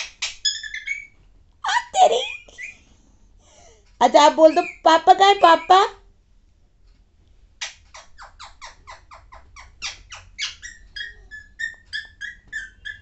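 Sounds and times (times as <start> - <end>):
parakeet squawking and chirping: 0.0 - 2.8, 4.1 - 6.0, 7.6 - 13.0.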